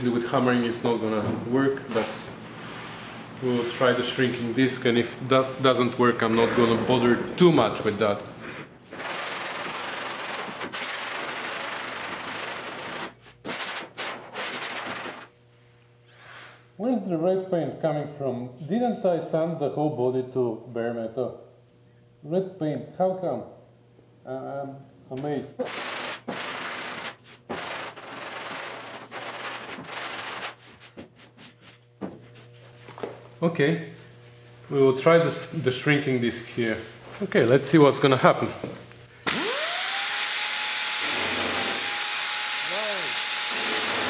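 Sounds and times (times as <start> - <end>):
sanding block rasping on metal: 25.7 - 31.6.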